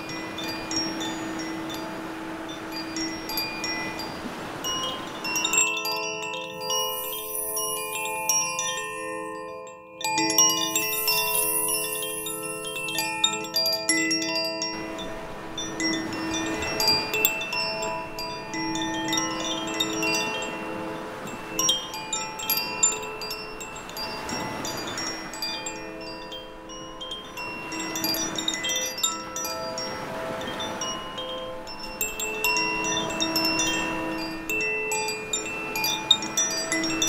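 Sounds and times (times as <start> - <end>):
waves washing over rocks: 0.0 - 9.0, 10.3 - 37.0
wind chime ringing: 0.0 - 37.0.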